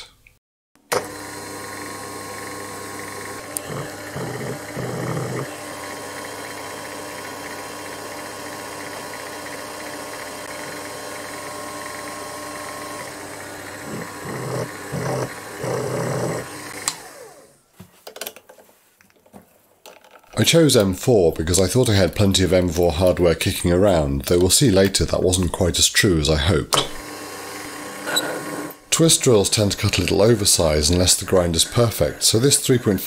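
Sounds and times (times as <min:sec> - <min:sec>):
milling machine running: 0:01.0 - 0:17.4
drill cutting steel: 0:01.1 - 0:17.0, 0:30.4 - 0:33.0.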